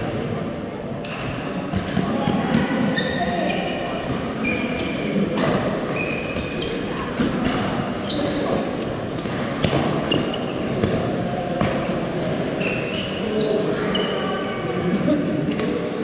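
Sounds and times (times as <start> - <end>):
shoes squeaking on court: 3.0 - 8.9, 10.0 - 11.0.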